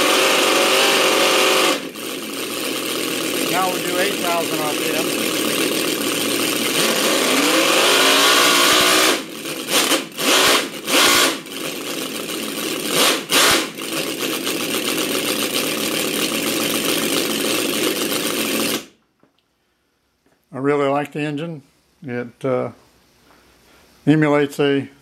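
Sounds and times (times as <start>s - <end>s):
model engine revving and idling: 0.0s - 18.9s.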